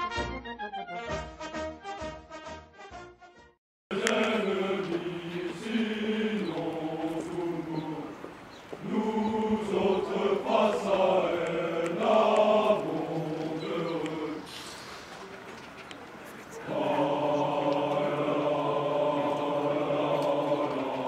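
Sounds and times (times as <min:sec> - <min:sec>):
men singing a marching song: 0:03.9 - 0:14.5, 0:16.6 - 0:21.0.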